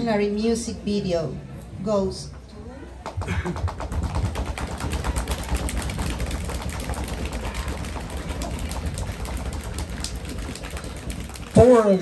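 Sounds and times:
drum roll: 3.4 - 11.9.

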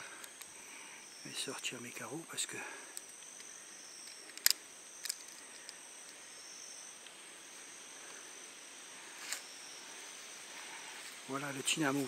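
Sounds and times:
insects droning: 0.0 - 12.0
sharp clicks: 2.4 - 6.2.

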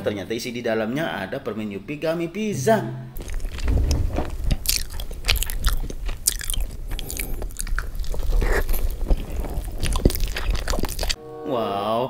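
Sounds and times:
chewing pizza: 3.2 - 11.2
crust crunching: 3.2 - 11.2.

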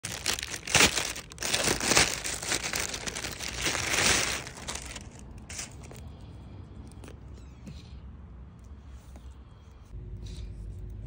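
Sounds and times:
plastic packaging crinkling: 0.0 - 6.0.

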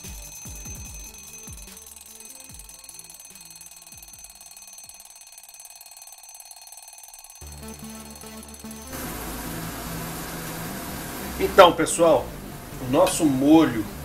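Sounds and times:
alarm clock ringing: 0.0 - 9.3.

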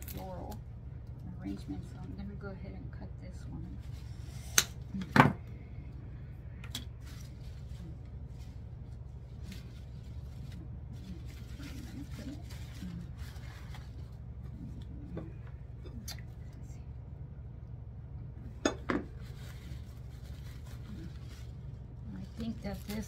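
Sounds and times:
low steady hum: 0.0 - 23.0
handling of artificial flower: 6.9 - 15.4, 19.0 - 23.0.

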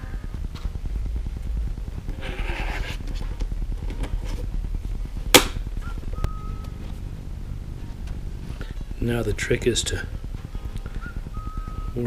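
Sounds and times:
steady low rumble: 0.0 - 12.0
sharp knock: 5.3 - 5.6.

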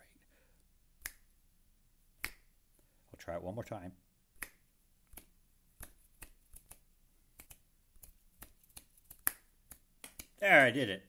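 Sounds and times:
finger snaps: 1.0 - 1.3, 2.2 - 2.6, 4.4 - 10.4.

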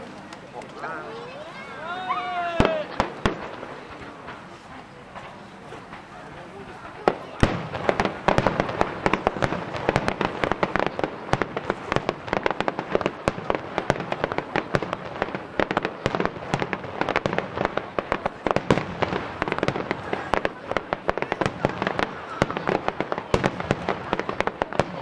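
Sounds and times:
fireworks bursting: 0.0 - 25.0.

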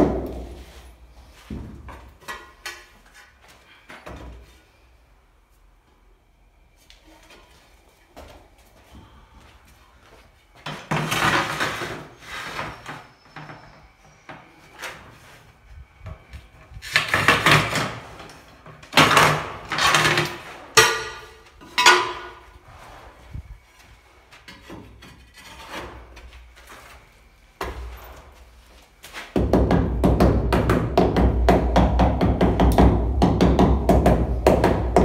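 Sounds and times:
trowel scraping tile adhesive: 24.7 - 26.2.

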